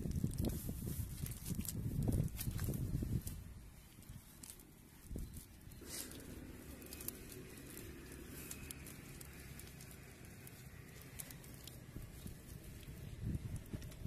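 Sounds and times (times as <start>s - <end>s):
hands patting wet mud: 0.0s - 14.0s.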